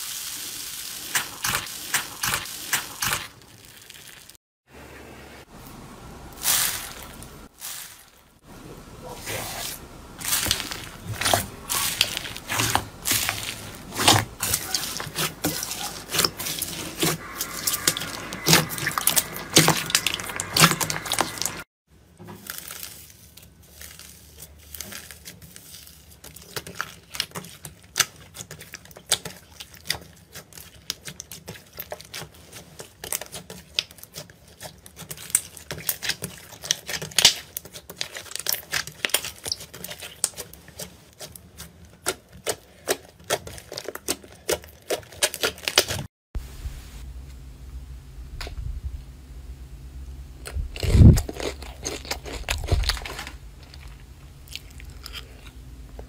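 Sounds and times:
slime crackling and popping: 0:33.0 - 0:40.5.

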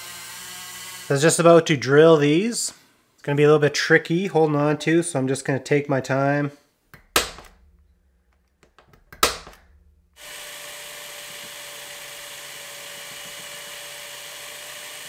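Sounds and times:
electric drill whining: 0:00.0 - 0:01.1, 0:09.4 - 0:15.0
centre punch click: 0:07.0 - 0:07.9, 0:08.6 - 0:09.8.

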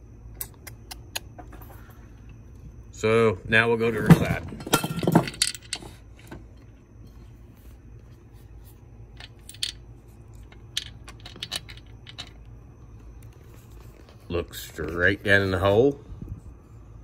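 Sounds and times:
low steady hum: 0:00.0 - 0:17.0.

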